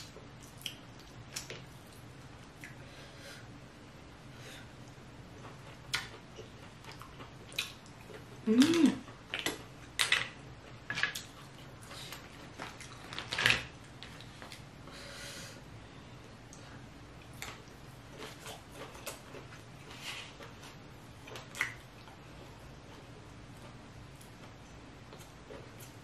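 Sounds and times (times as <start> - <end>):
mouth eating sounds: 7.5 - 9.6.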